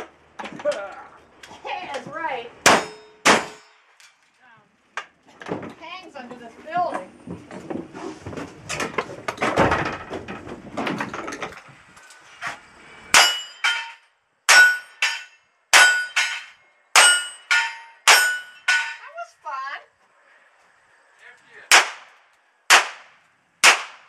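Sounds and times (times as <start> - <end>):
gunshots: 2.6 - 3.6, 21.7 - 24.0
steel targets clanging: 2.6 - 4.2, 13.1 - 19.2.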